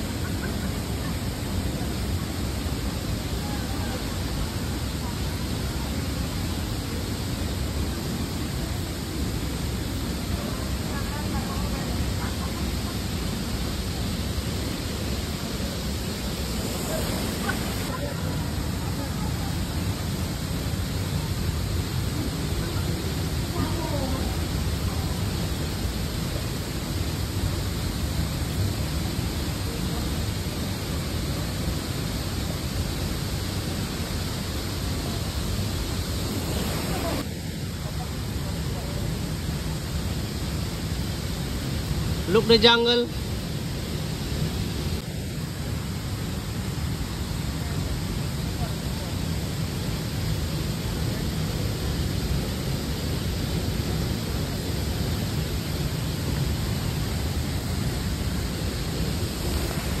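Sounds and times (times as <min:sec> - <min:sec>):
waterfall and river rushing: 0:00.0 - 1:00.0.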